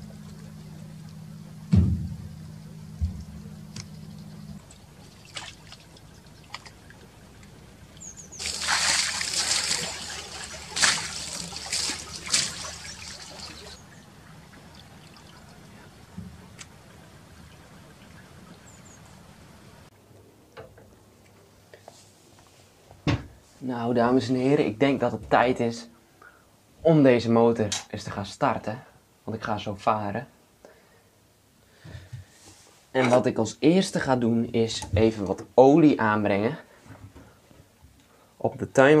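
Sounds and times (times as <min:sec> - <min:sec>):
low hum: 0:00.0 - 0:21.2
heavy knock: 0:01.7 - 0:02.3
water splashing on deck: 0:04.6 - 0:19.9.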